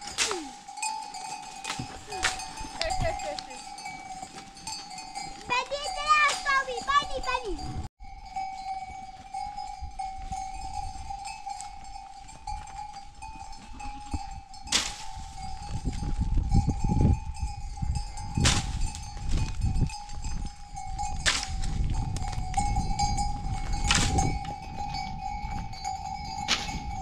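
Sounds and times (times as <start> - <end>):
stick cracking on branches: 0.0 - 0.6, 14.8 - 15.1, 21.2 - 21.8
sheep bell ringing: 0.0 - 27.0.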